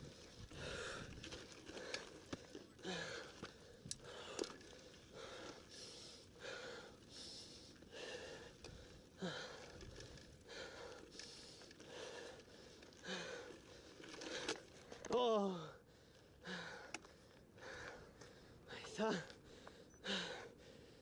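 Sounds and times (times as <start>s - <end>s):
person breathing hard: 15.7s - 21.0s.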